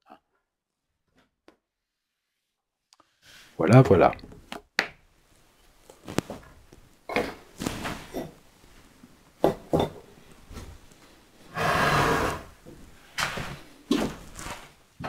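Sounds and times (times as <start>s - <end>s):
wood-on-wood sliding scrape: 11.5s - 12.6s.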